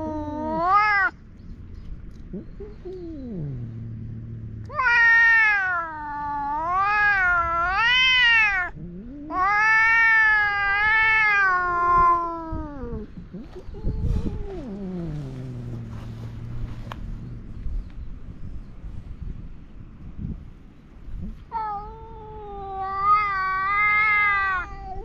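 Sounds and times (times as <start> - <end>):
cat growling: 0.0 - 1.2, 2.2 - 16.7
cat yowling: 0.0 - 1.2, 4.7 - 13.1, 21.5 - 25.0.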